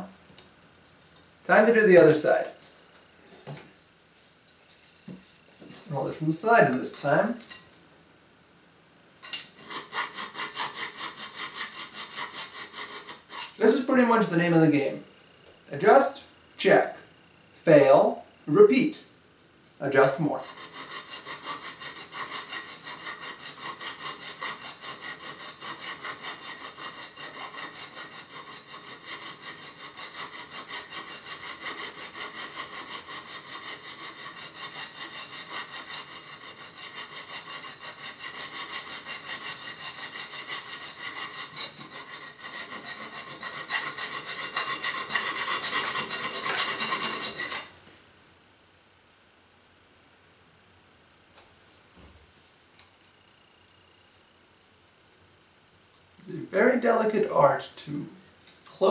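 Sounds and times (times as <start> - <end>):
hand file scraping metal: 5.7 - 7.6, 9.2 - 14.3, 20.1 - 47.7.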